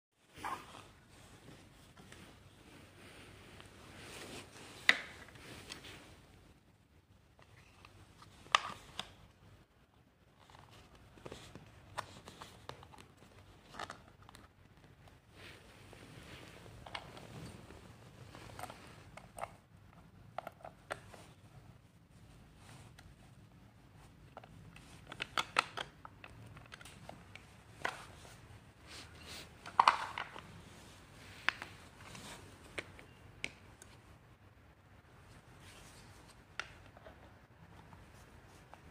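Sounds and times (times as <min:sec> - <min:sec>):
plastic parts clicking and knocking: 0:24.3 - 0:28.2, 0:29.6 - 0:30.5.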